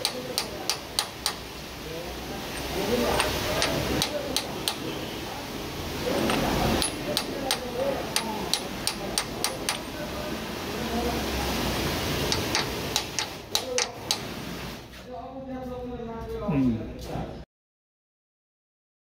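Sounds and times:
hammer tapping metal: 0.0 - 1.5, 2.6 - 4.9, 6.2 - 10.0, 12.3 - 14.3.

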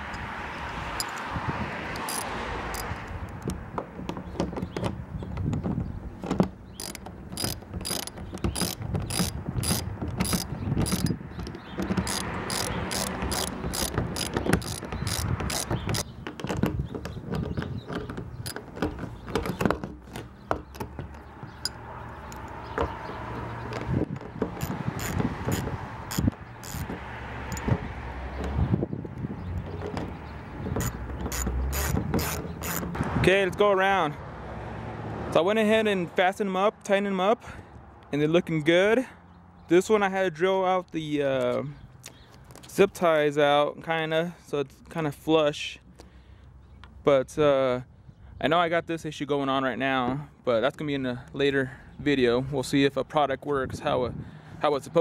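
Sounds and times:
ratchet wrench clicking: 1.0 - 1.2, 1.9 - 3.6, 6.8 - 16.1, 24.6 - 26.9, 30.8 - 33.0.

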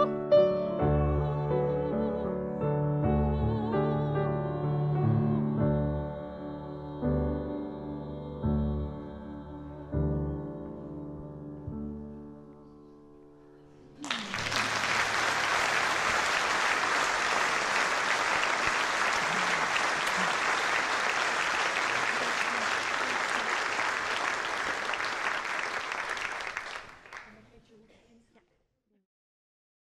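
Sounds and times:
piano and voices chord: 0.0 - 14.4
audience applauding: 14.0 - 27.5.

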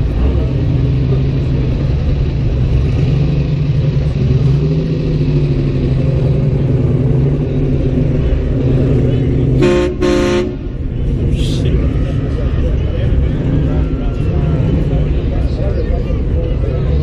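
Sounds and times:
car engine running low: 0.0 - 17.0.

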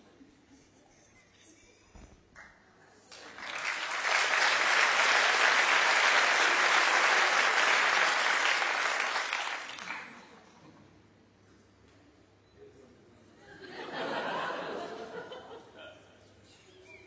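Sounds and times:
audience applauding: 3.1 - 10.3.

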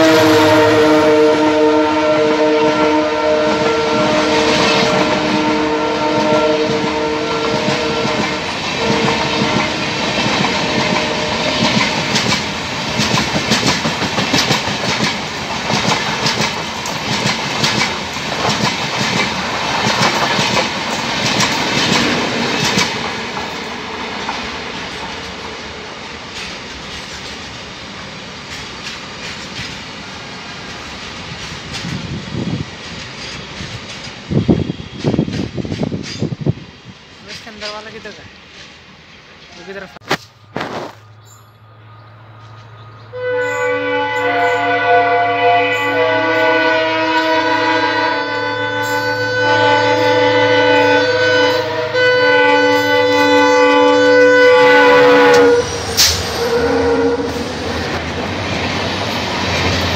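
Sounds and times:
locomotive horn chord: 0.0 - 11.7, 43.0 - 58.0
train wheels clacking on rails: 3.5 - 27.7, 28.4 - 38.8, 54.9 - 56.7, 57.3 - 59.9.

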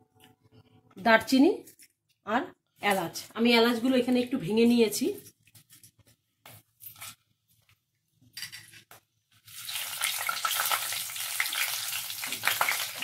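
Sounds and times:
spices sizzling in hot oil: 9.3 - 13.0.

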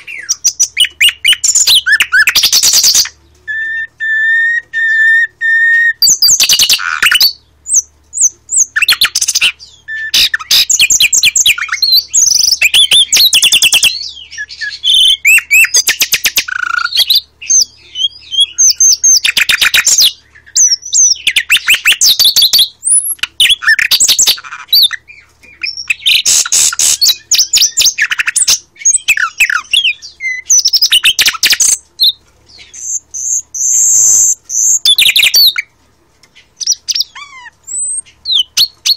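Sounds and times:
nightingale singing: 0.0 - 38.9.

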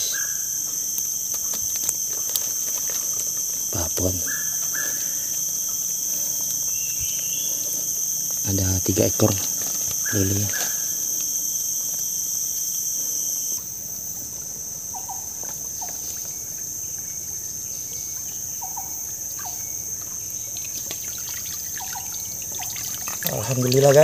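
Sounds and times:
insects droning: 0.0 - 24.0
water trickling and splashing: 19.1 - 24.0.

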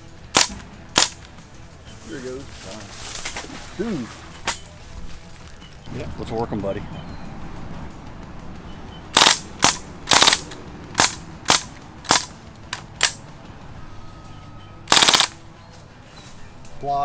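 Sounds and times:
rifle shots cracking: 0.3 - 1.3, 9.2 - 13.2, 14.9 - 15.4.

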